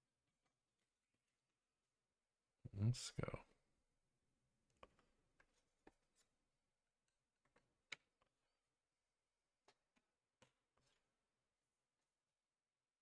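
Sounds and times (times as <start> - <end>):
faint clicks and taps of handling: 4.7 - 6.3, 7.0 - 8.5.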